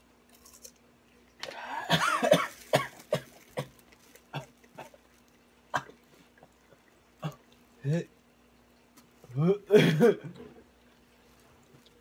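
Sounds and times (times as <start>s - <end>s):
person coughing: 1.5s - 5.0s, 9.7s - 10.4s.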